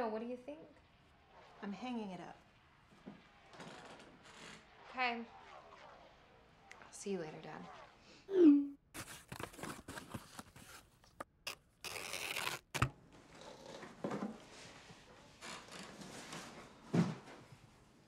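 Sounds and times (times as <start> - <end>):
cardboard boxes being handled: 9.0 - 11.2
packing tape tearing: 9.0 - 12.9.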